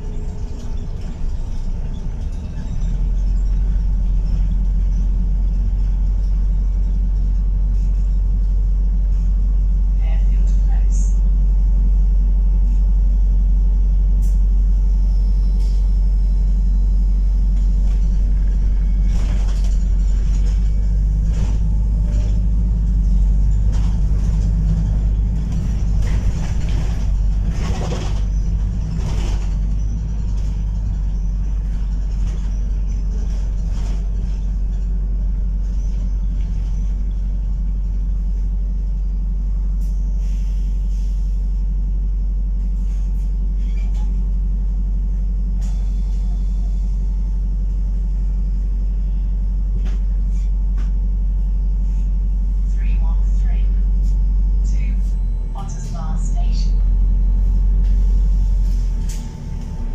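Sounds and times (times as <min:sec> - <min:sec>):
bus drivetrain drone: 0:00.0 - 0:59.9
road rumble: 0:00.0 - 0:59.9
bus body knocks and rattles: 0:17.4 - 0:37.9.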